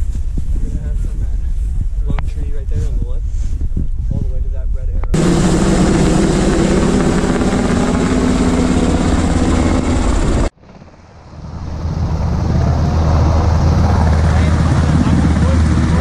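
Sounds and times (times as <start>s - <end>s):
helicopter rotor and turbines: 3.6s - 16.0s.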